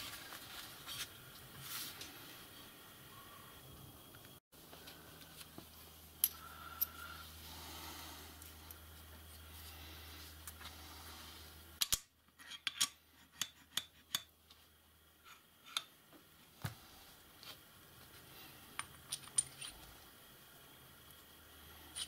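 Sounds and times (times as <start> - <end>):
steel parts clinking: 18.8 - 19.9.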